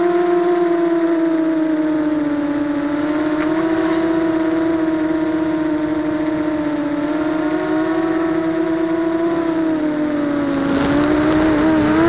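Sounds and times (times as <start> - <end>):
quadcopter motors whining: 0.0 - 12.0.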